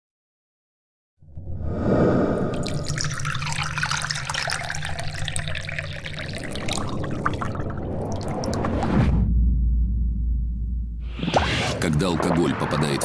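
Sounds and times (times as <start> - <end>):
liquid pouring into shot glass: 2.4 - 8.7.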